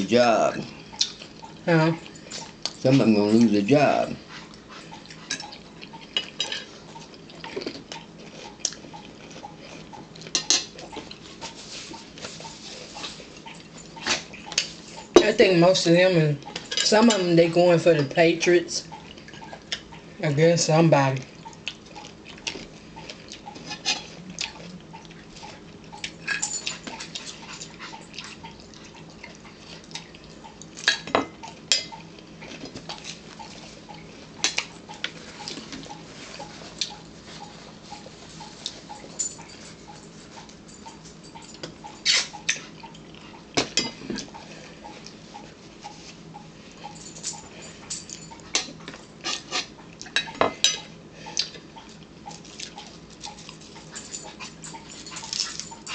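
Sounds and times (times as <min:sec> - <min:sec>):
chewing: 0:00.6 - 0:15.2, 0:18.8 - 0:20.1, 0:21.2 - 0:55.9
forks scraping on china plates: 0:23.6 - 0:24.1, 0:47.6 - 0:50.8.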